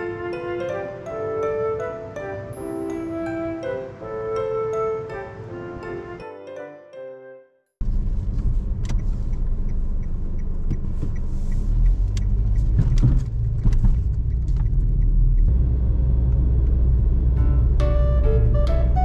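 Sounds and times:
car engine and road noise: 7.8 - 19.0
light ticking: 8.8 - 15.5.

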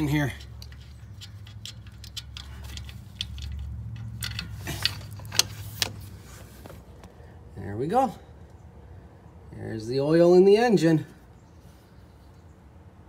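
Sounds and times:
light metallic clicks: 0.0 - 6.0.

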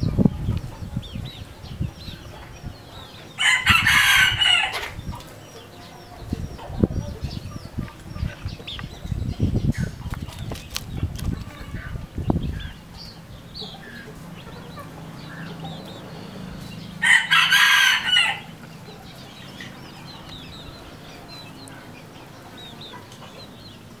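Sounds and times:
chickens clucking and peeping: 0.0 - 24.0
rooster crowing: 3.4 - 5.0, 17.0 - 18.6.

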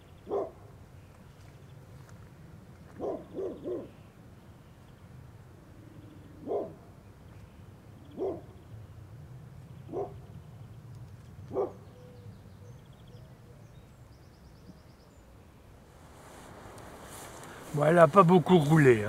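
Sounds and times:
dog barking: 0.3 - 0.6, 3.0 - 3.9, 6.4 - 6.8, 8.2 - 8.5, 9.9 - 10.2, 11.5 - 11.8.

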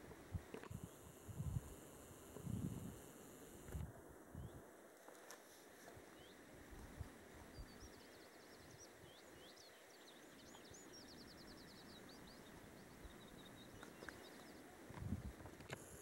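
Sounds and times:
faint steady hiss: 0.0 - 16.0
songbird chirping and trilling: 7.5 - 14.8.

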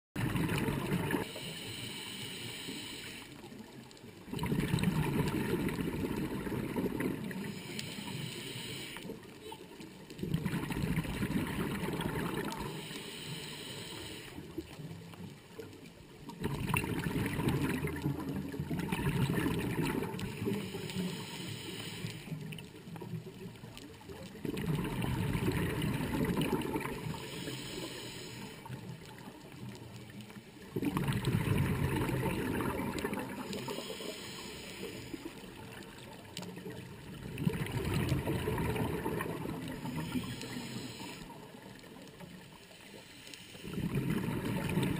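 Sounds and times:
gurgling exhaled bubbles: 0.2 - 1.4, 4.2 - 7.7, 10.1 - 12.9, 16.2 - 20.9, 22.4 - 42.5, 43.6 - 44.9
regulator inhale hiss: 1.2 - 3.7, 7.3 - 9.6, 12.5 - 14.6, 20.1 - 22.6, 26.9 - 29.2, 33.4 - 35.8, 39.7 - 44.0.

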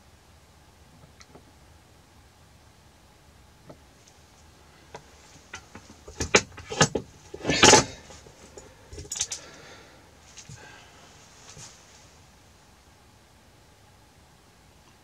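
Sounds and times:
metal hand tools clattering: 5.6 - 9.5.

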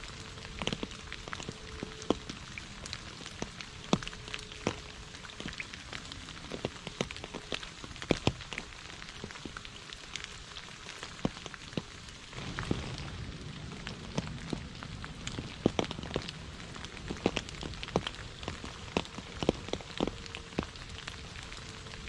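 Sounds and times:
light rain hiss: 0.0 - 22.0.

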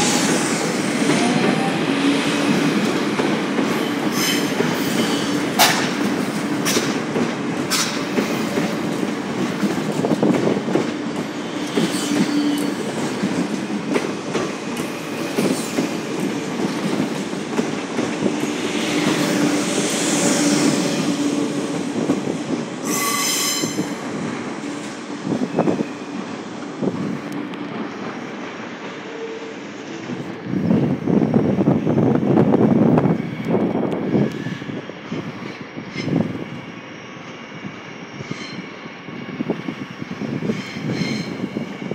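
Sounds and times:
low train hum: 0.0 - 41.9
train wheels rumbling on rail: 0.0 - 41.9
high wheel squeal: 11.5 - 12.9, 22.8 - 24.0, 38.1 - 38.8, 40.4 - 41.7.

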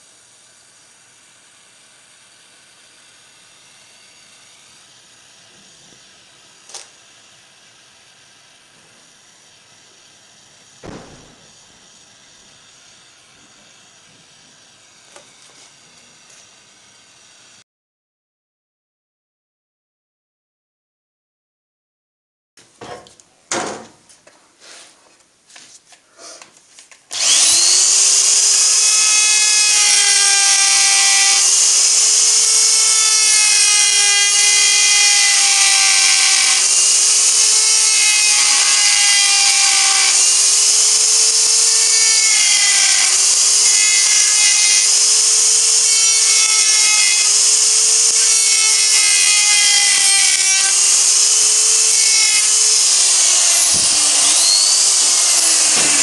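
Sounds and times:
die grinder whining: 27.1 - 56.0.

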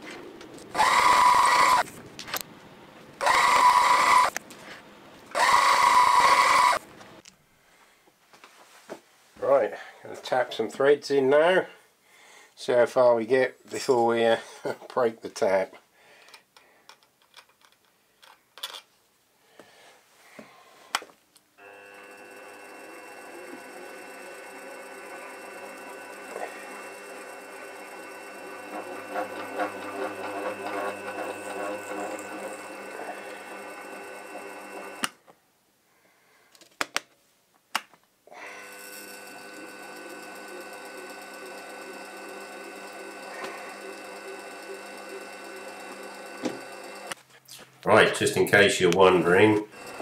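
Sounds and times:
milling machine motor running: 0.6 - 1.9, 3.2 - 4.4, 5.3 - 6.8, 21.6 - 35.2, 38.4 - 47.2, 49.0 - 50.0.

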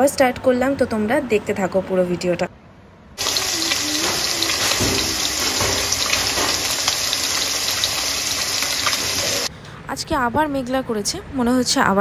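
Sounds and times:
fish frying in hot oil: 3.2 - 9.5.

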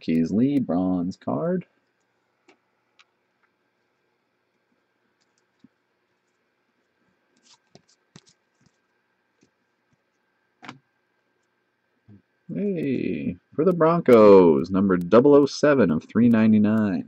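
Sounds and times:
trading cards clicking and scraping: 7.3 - 9.6.

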